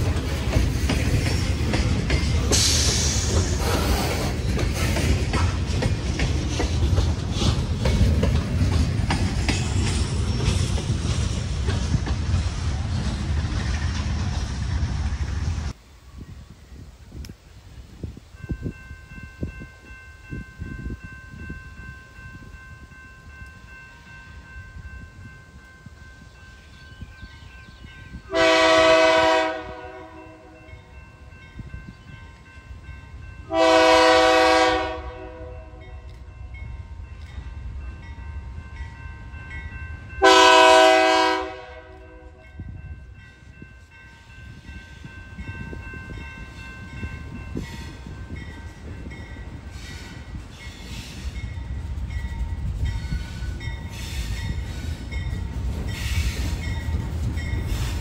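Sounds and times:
locomotive air horn blasts: 0:28.3 - 0:30.6, 0:33.5 - 0:35.8, 0:40.2 - 0:42.4.

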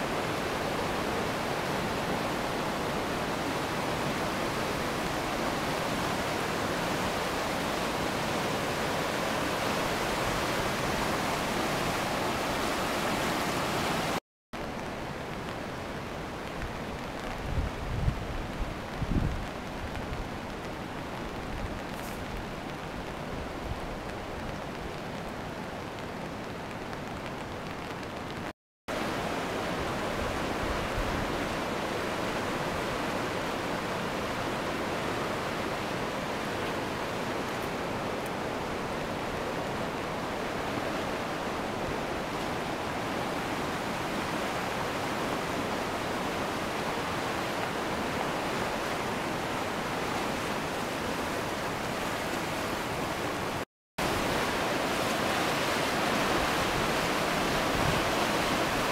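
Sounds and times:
river rushing over stones: 0:00.0 - 0:27.0, 0:27.6 - 0:58.9
hiss of wet street: 0:21.9 - 0:22.4.

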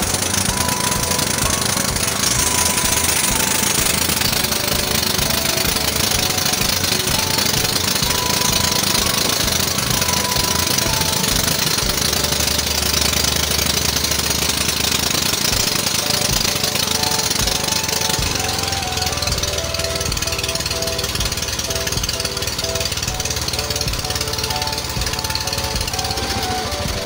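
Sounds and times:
boat engine knocking: 0:00.0 - 0:27.0.

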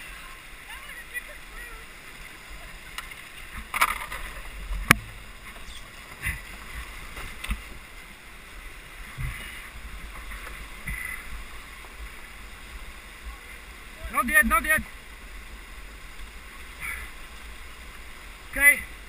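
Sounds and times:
whitewater rapids rushing: 0:00.0 - 0:19.0
canoe knocking against rocks: 0:03.0 - 0:05.6
dull bumps of canoe: 0:09.0 - 0:12.2.

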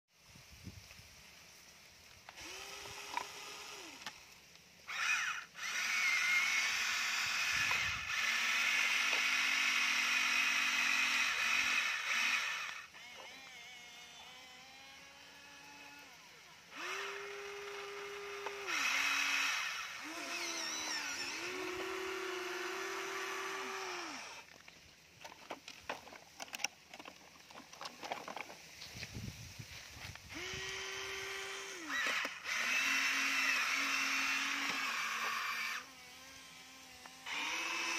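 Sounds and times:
small electric motors whining: 0:01.6 - 0:37.9
loud gear buzz: 0:04.9 - 0:24.5, 0:30.3 - 0:37.9.

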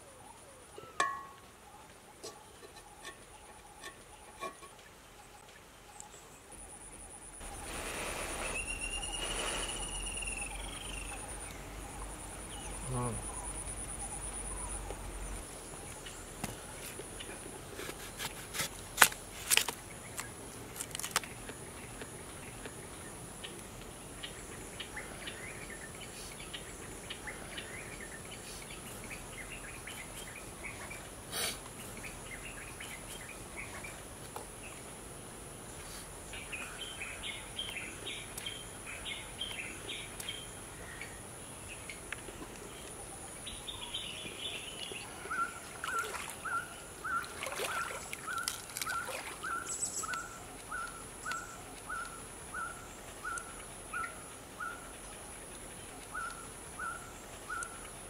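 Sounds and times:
birds chirping: 0:00.0 - 0:17.4, 0:36.3 - 0:58.0.

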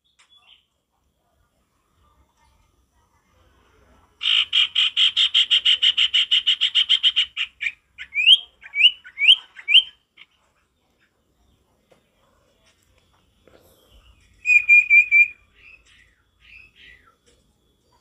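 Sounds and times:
bird trilling: 0:04.2 - 0:10.0, 0:14.1 - 0:17.2.

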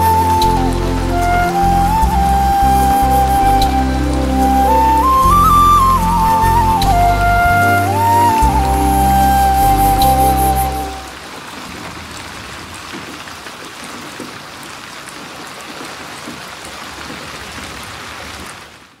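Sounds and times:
music track: 0:00.0 - 0:11.2
steady rain: 0:00.0 - 0:19.0.

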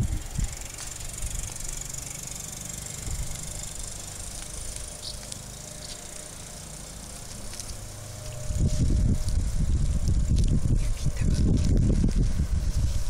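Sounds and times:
insects chirring: 0:00.6 - 0:10.2
low rumble: 0:02.9 - 0:13.0.

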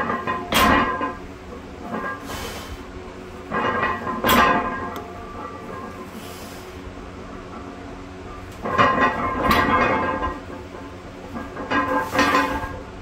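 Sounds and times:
weight plates rattling: 0:00.0 - 0:02.4, 0:03.4 - 0:06.2, 0:08.4 - 0:13.0
weight plates ringing: 0:07.4 - 0:12.8
barbell clanking on floor: 0:08.5 - 0:12.8.

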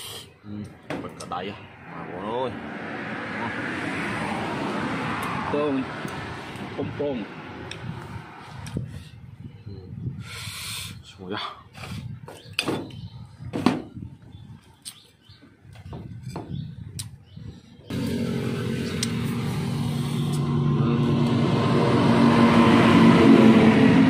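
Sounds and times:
motor running: 0:17.9 - 0:21.6.

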